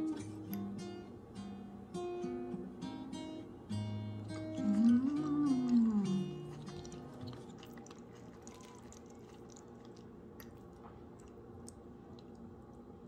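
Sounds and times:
soft food squishing: 4.3 - 13.0.

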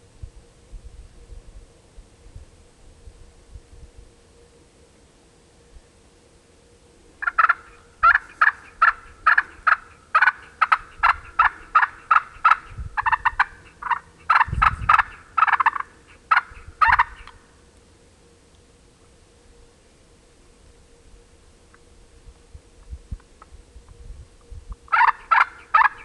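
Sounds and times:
wooden turkey call notes: 7.2 - 17.5, 24.7 - 26.0.

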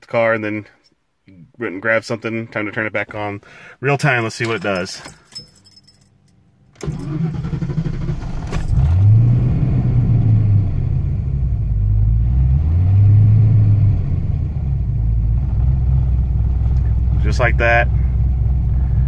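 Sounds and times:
starter motor cranking: 6.8 - 8.8
engine starting and idling unevenly: 6.8 - 9.4.

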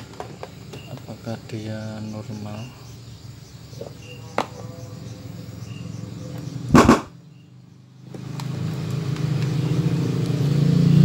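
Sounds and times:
loud thump: 6.7 - 7.2.

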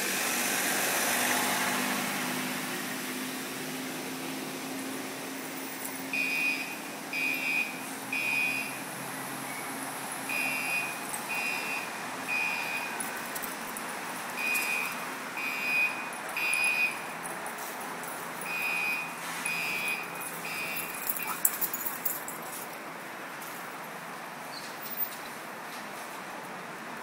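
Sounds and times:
high alarm beeps: 6.2 - 8.8, 10.3 - 13.0, 14.4 - 17.1, 18.4 - 21.3.

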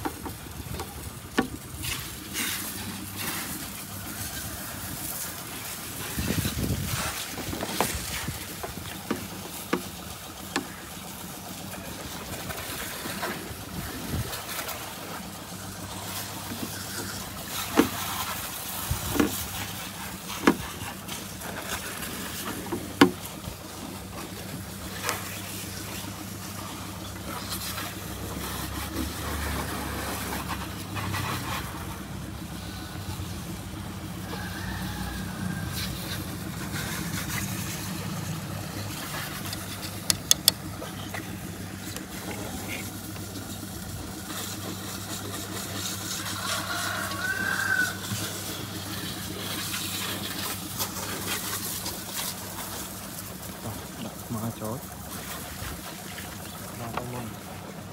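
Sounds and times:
low engine-like hum: 0.0 - 57.9
sharp clicks and taps: 39.5 - 41.2.

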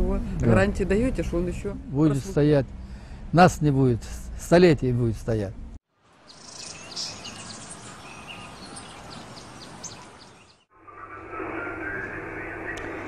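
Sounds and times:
dull hum and hiss: 0.0 - 8.4
birds chirping: 5.5 - 13.0.

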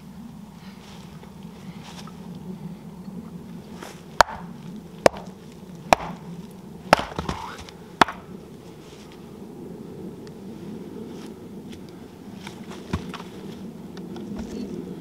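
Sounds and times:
axe chopping wood: 4.2 - 5.3, 5.9 - 6.2, 6.9 - 8.3.

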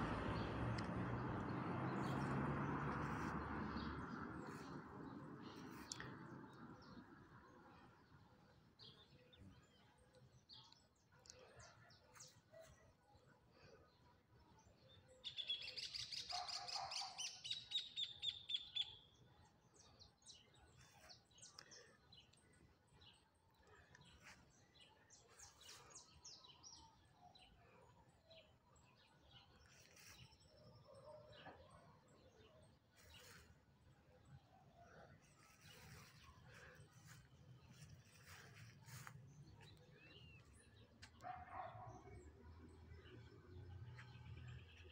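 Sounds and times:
small birds chirping: 32.6 - 44.9.

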